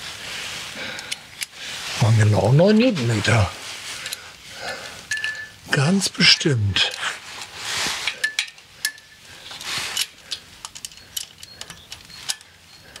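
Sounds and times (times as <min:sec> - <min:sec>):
tool clinking on metal: 0:05.1 - 0:05.6, 0:08.1 - 0:13.0.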